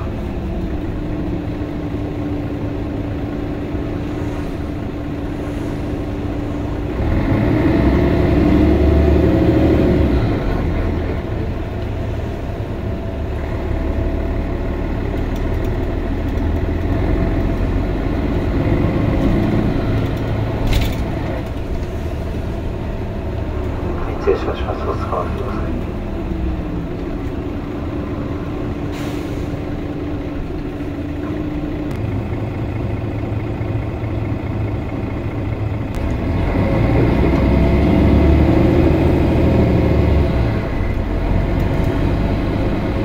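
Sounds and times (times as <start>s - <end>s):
bus diesel engine: 0.0s - 43.0s
road noise: 0.0s - 43.0s
steady whine: 21.9s - 28.5s.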